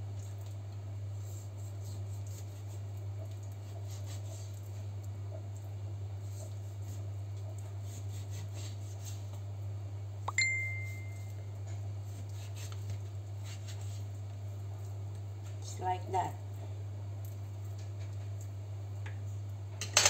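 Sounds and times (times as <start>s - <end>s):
knife cutting meat: 1.2s - 4.6s, 7.8s - 9.2s, 12.0s - 14.0s
bright ding: 10.3s - 11.3s.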